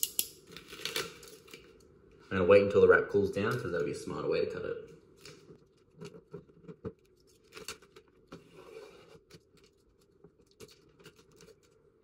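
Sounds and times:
vinyl wrap rustling and clicking: 0:05.2 - 0:11.7.

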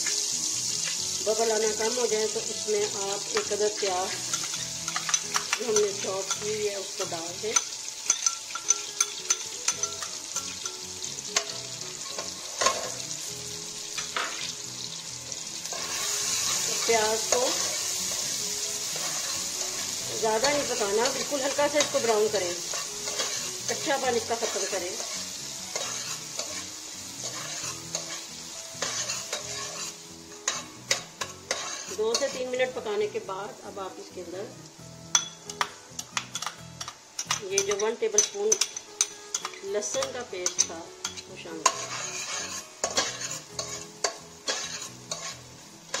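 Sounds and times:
onion sizzling in hot oil: 0:00.0 - 0:46.0
metal spoon clinking against pot: 0:04.3 - 0:06.5, 0:07.5 - 0:10.8, 0:12.1 - 0:12.9, 0:35.1 - 0:46.0
metal spoon scraping a pot: 0:24.4 - 0:32.4, 0:37.6 - 0:46.0.

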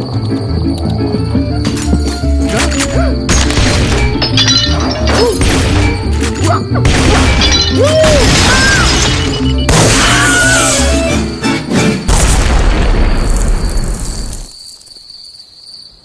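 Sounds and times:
cartoon music: 0:00.5 - 0:12.0
crashing and smashing effects: 0:02.5 - 0:11.2.

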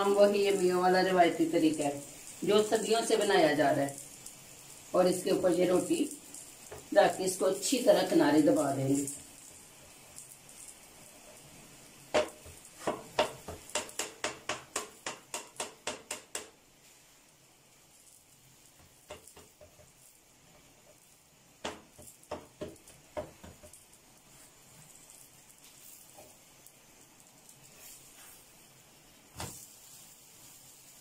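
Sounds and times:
hand tapping dough: 0:12.1 - 0:16.6.

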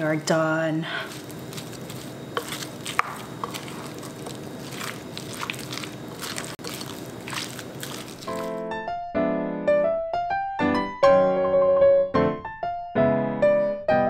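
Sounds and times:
spoon scraping glass bowl: 0:01.0 - 0:08.6
wet squishing of stirred salad: 0:01.0 - 0:08.6.

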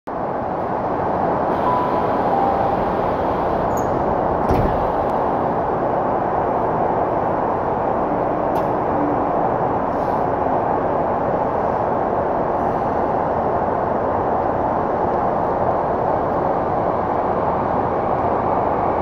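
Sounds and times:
train car running noise: 0:00.1 - 0:19.0
sliding doors shutting: 0:01.5 - 0:05.7.

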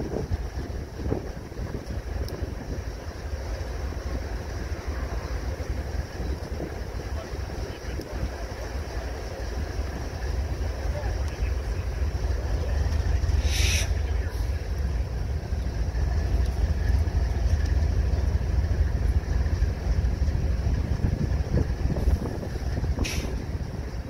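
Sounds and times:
diesel locomotive idling: 0:00.0 - 0:24.0
short bursts of air hiss: 0:13.4 - 0:14.0, 0:23.0 - 0:23.4.

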